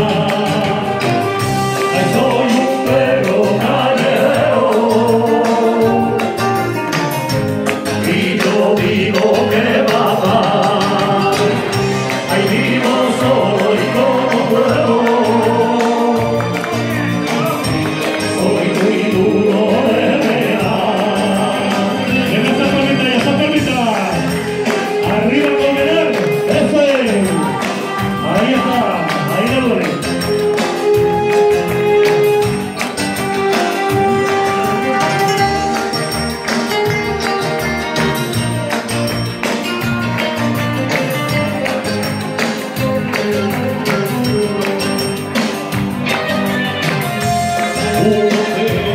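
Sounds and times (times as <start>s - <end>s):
man singing: 0.0s - 6.6s, 7.9s - 32.5s, 46.1s - 48.9s
people clapping along: 0.0s - 48.9s
rumba music: 0.0s - 48.9s.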